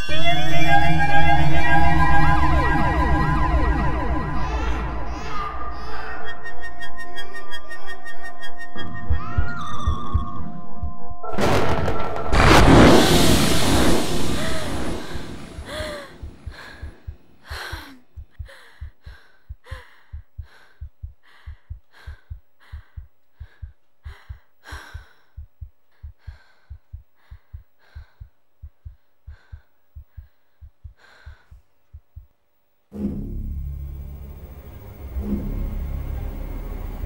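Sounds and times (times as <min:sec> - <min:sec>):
heartbeat lub-dub: 0:07.9 - 0:12.6, 0:13.6 - 0:32.4
heavy breaths and gasps: 0:14.2 - 0:32.0.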